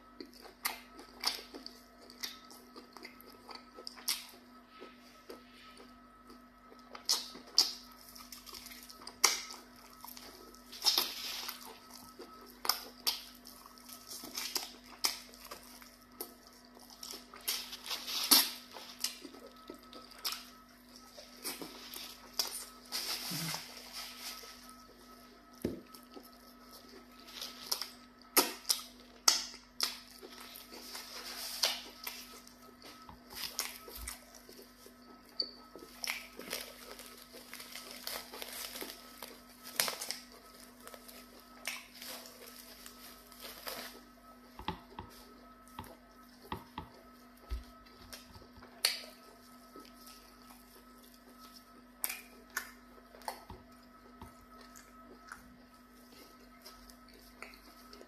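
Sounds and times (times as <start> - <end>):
wet chewing and lip-smacking: 0.1 - 22.8, 45.6 - 58.0
plastic wrap crinkling: 35.9 - 44.2.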